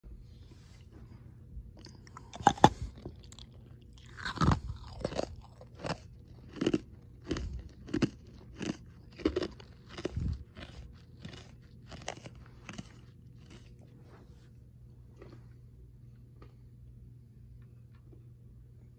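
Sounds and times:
ice being chewed: 1.8s - 14.0s.

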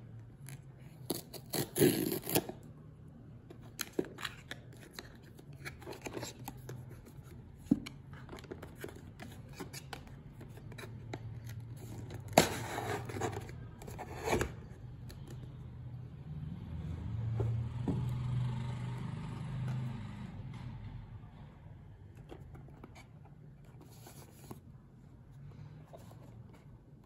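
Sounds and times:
packaging scraping and rustling: 3.8s - 14.7s.

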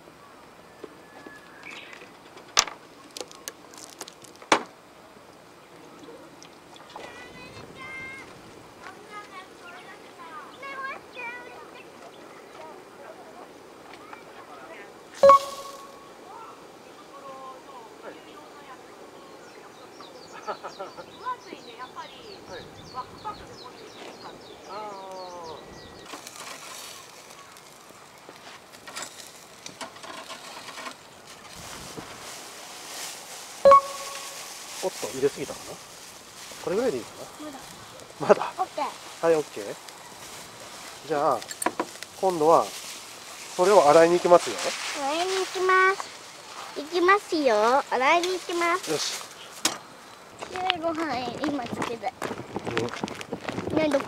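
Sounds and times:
close rustling and crinkling: 1.7s - 4.5s, 26.0s - 54.0s.

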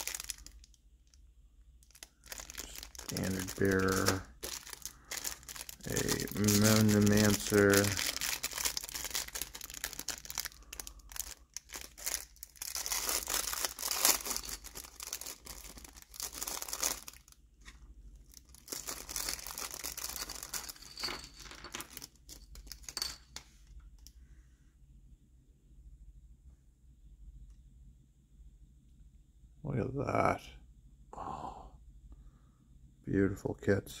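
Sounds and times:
plastic bags crinkling: 0.0s - 0.7s, 1.8s - 23.3s.

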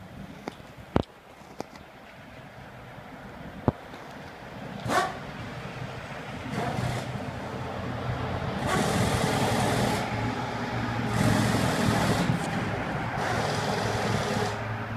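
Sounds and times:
truck engine humming: 2.4s - 14.9s
car passing: 4.0s - 14.9s.

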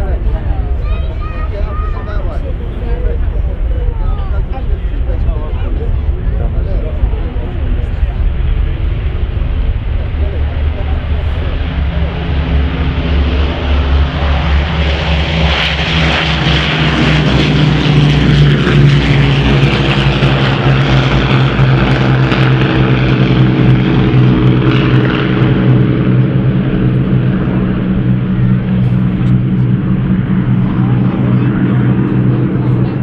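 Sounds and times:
propeller aircraft engines droning: 0.0s - 33.0s.

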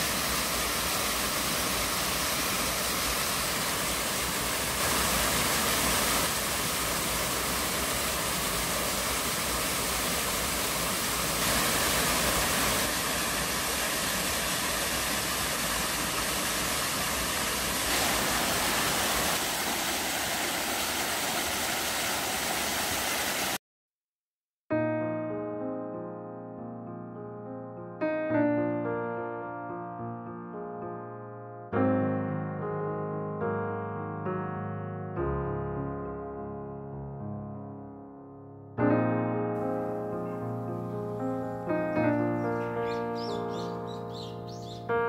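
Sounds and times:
waterfall splashing into a pool: 0.0s - 23.6s.

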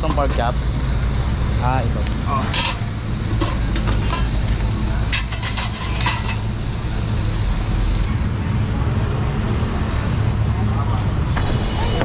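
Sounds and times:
meat sizzling on a hot plate: 0.0s - 8.1s
steady low rumble: 0.0s - 8.1s.

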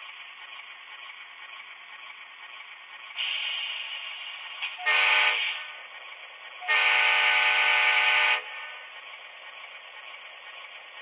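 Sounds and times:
engine hum: 0.0s - 11.0s
model locomotive horn blasts: 4.8s - 5.7s, 6.6s - 8.7s.

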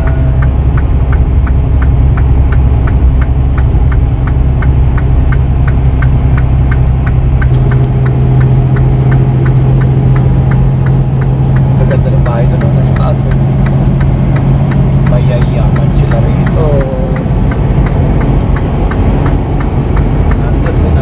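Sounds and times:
regular ticking: 0.0s - 21.0s
truck diesel engine running: 0.0s - 21.0s.

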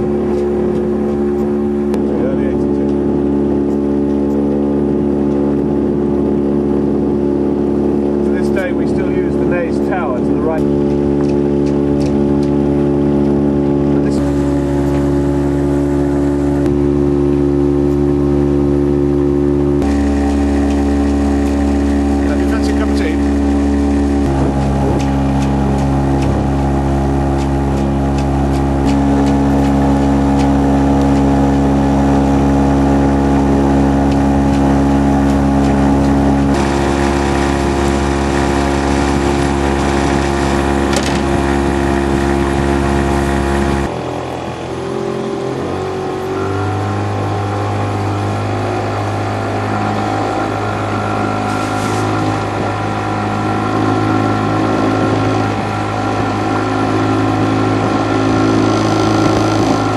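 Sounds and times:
boat engine humming: 0.0s - 59.9s.

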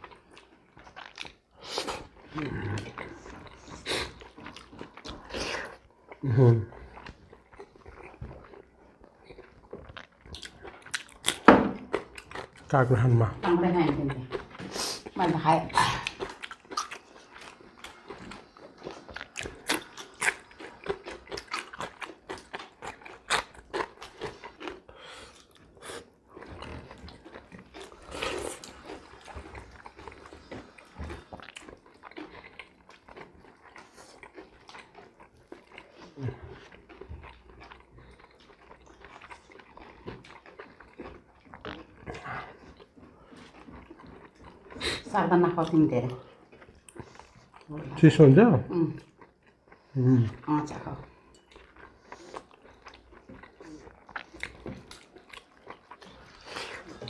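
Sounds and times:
crisp biting and chewing: 0.0s - 6.2s, 6.9s - 13.2s, 13.8s - 45.7s, 51.2s - 57.0s
wet mouth noises: 0.0s - 6.3s, 13.7s - 47.7s.

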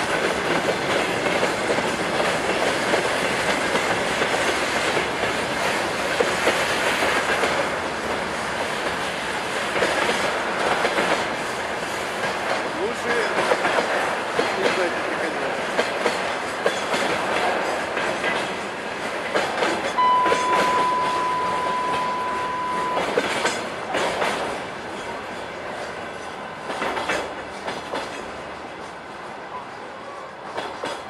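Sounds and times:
wheels clacking over rail joints: 0.0s - 22.0s, 22.9s - 29.0s, 30.4s - 31.0s
freight train rolling past: 0.0s - 31.0s
censor bleep: 20.0s - 23.1s.

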